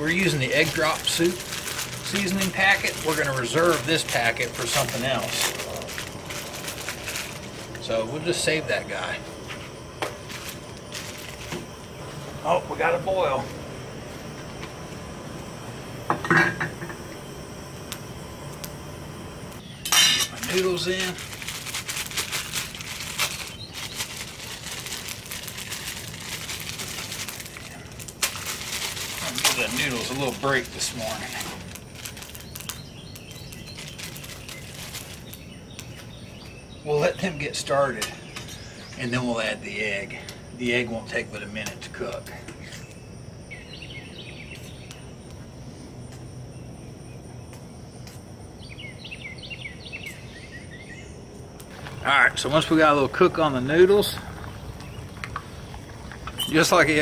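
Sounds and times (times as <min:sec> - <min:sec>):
plastic wrapper crinkling: 0:00.1 - 0:08.0, 0:10.1 - 0:11.9, 0:20.4 - 0:36.0
bird chirping: 0:19.6 - 0:21.0, 0:22.8 - 0:24.7, 0:32.1 - 0:39.9, 0:42.5 - 0:45.3, 0:48.6 - 0:57.0.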